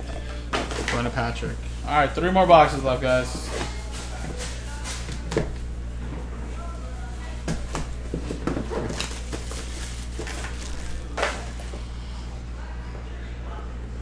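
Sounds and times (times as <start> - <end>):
steady low hum: 0.0 - 14.0
shrink wrap crinkling and tearing: 8.7 - 11.7.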